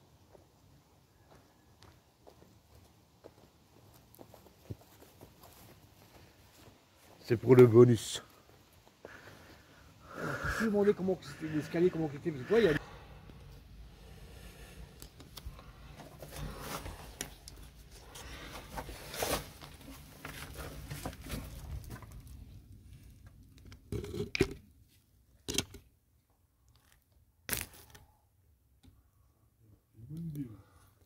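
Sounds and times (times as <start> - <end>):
phone rustling and scraping: 16.0 - 22.2.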